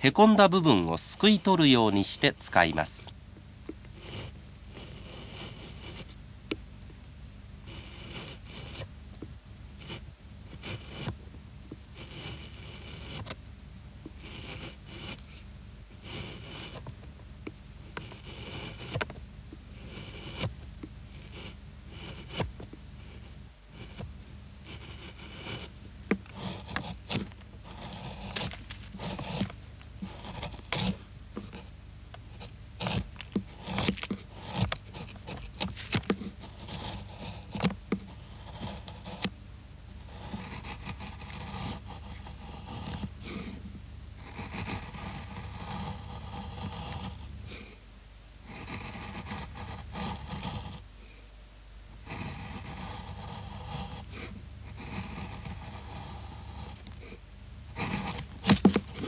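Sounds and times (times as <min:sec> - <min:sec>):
gouge scraping wood: 0:00.0 - 0:03.1, 0:03.7 - 0:06.2, 0:07.6 - 0:13.4, 0:14.0 - 0:47.7, 0:48.5 - 0:50.9, 0:52.0 - 0:59.0
gouge cutting wood: 0:04.0 - 0:06.2, 0:07.7 - 0:08.9, 0:09.8 - 0:11.2, 0:12.0 - 0:13.4, 0:14.1 - 0:15.4, 0:16.0 - 0:17.0, 0:18.0 - 0:39.3, 0:40.0 - 0:43.6, 0:44.2 - 0:47.3, 0:48.5 - 0:50.8, 0:52.1 - 0:57.1, 0:57.7 - 0:59.0.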